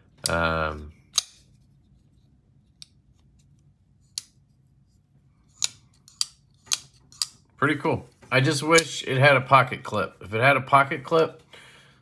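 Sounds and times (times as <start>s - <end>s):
folding knife blade snapping: 1.1s - 1.4s.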